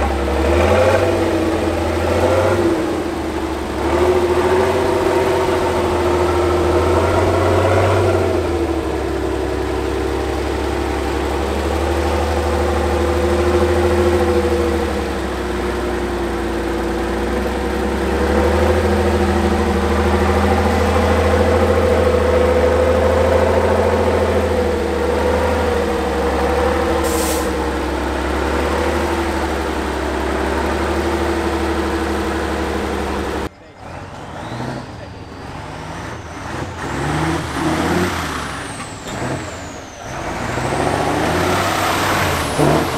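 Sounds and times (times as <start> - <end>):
truck diesel engine working: 0.0 - 42.9
short hiss: 27.0 - 27.5.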